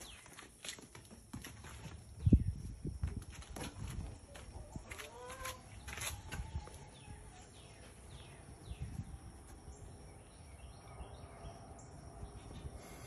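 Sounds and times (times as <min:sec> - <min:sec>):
small birds chirping: 0:04.0 - 0:13.0.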